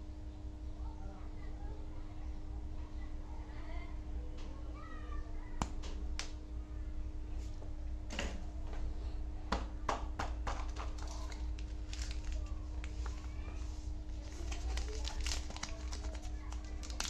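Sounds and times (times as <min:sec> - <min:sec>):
steady low hum: 0:00.0 - 0:17.0
snack packages tapping on table: 0:09.9 - 0:11.1
plastic wrapper crinkling: 0:10.6 - 0:17.0.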